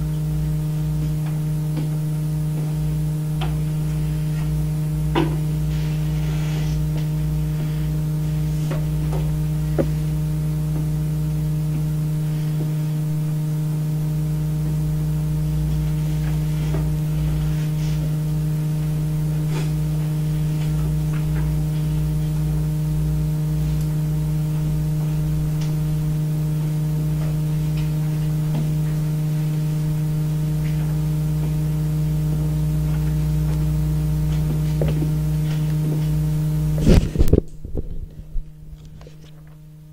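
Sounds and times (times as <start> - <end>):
electrical hum: 0.0 - 39.9.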